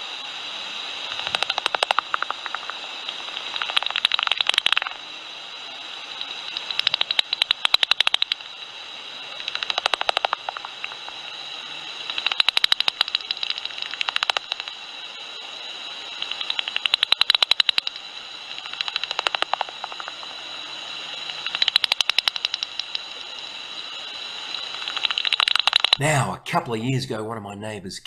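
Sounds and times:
bat detector hiss: 0.0s - 26.0s
bat call clicks: 1.1s - 5.0s, 6.2s - 8.4s, 9.4s - 11.1s, 12.0s - 14.8s, 16.2s - 18.0s, 18.6s - 20.3s, 21.3s - 23.3s, 24.5s - 26.1s.

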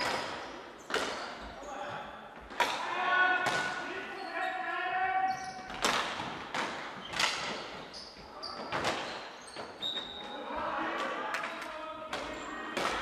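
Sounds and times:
hockey stick hitting ball: 5.7s - 7.6s.

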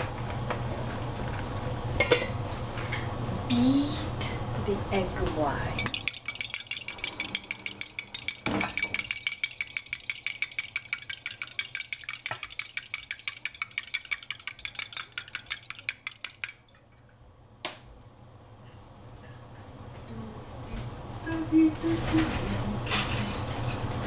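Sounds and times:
utensil clinking against glass: 5.8s - 17.1s.

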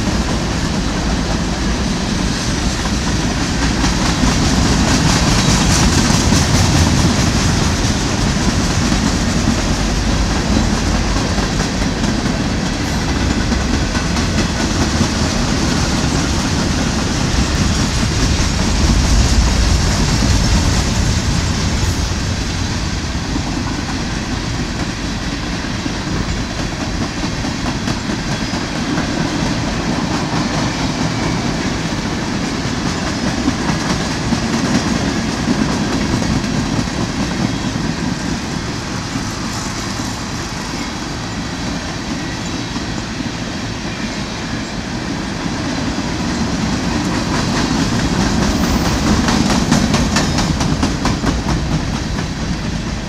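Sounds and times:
freight train wheels rumbling: 0.0s - 53.0s.

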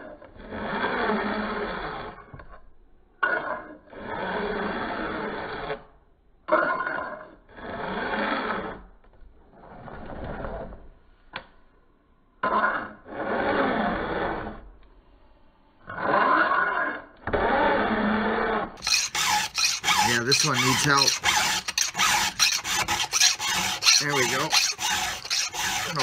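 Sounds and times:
file scraping saw chain: 12.5s - 14.6s, 15.9s - 26.0s.

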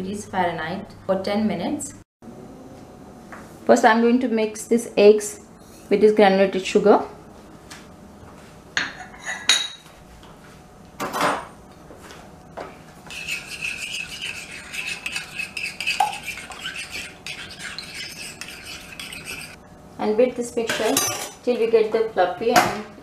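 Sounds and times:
metal spoon clinking against glass bowl: 21.0s - 21.4s.

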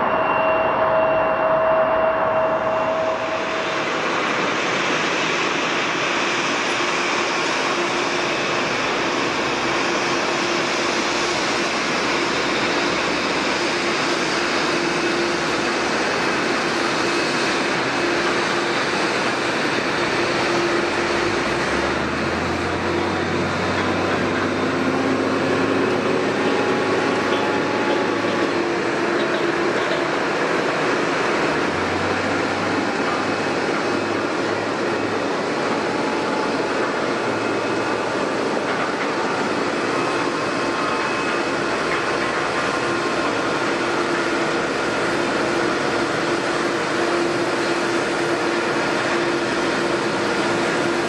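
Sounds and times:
deeper hum: 0.0s - 4.4s
jet engines rushing: 0.0s - 51.0s.

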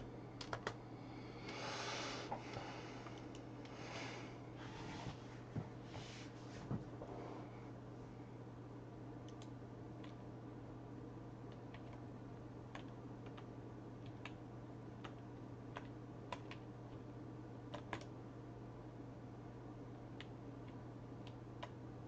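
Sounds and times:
steady low hum: 0.0s - 22.0s
computer keys and mouse clicking: 0.4s - 0.8s, 9.2s - 10.2s, 11.5s - 12.0s, 12.7s - 14.4s, 15.0s - 17.0s, 17.7s - 18.1s, 20.2s - 21.8s.

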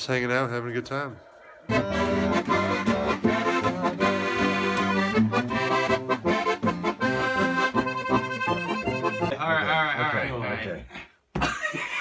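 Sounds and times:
accordion playing a tune: 1.7s - 9.5s.

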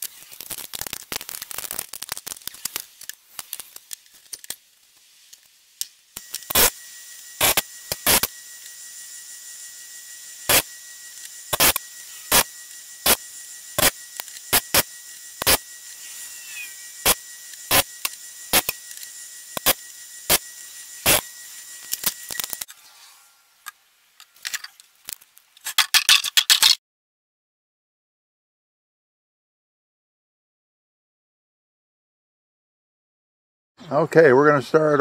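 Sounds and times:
electric motor whining: 6.1s - 23.6s
saw teeth grinding on wheel: 6.2s - 22.8s.

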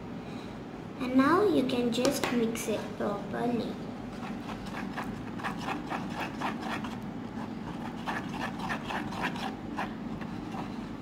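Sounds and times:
spoon stirring slime in plastic bowl: 4.1s - 10.9s.

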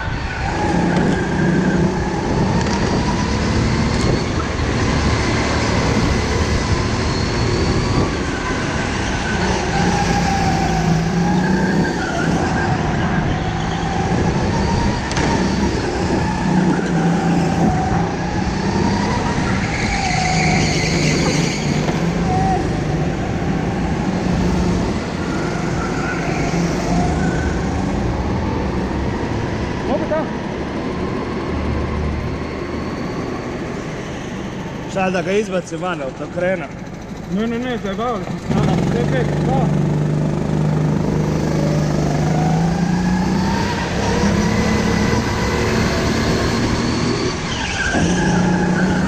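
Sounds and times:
go-kart motor rumbling: 0.0s - 49.0s.

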